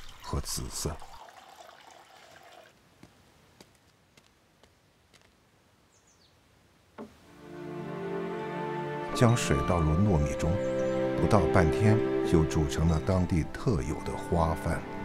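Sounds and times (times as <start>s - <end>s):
water pouring into bowl: 0.0s - 2.7s
water drips: 0.0s - 2.8s
music: 7.3s - 15.0s.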